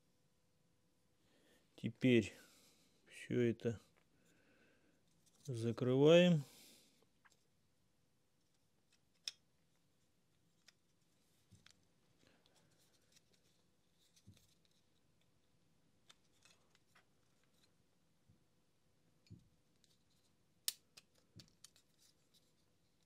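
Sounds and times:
plastic parts clicking together: 0:08.9 - 0:09.5, 0:20.6 - 0:22.0.

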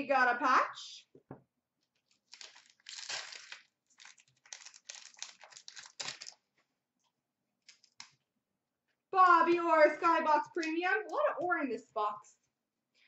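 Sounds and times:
plastic wrappers crinkling: 0:01.8 - 0:06.7, 0:07.6 - 0:08.2.

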